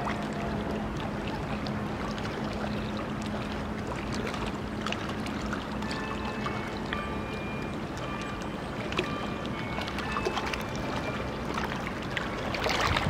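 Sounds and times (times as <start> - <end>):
river water lapping and splashing: 0.0 - 13.0.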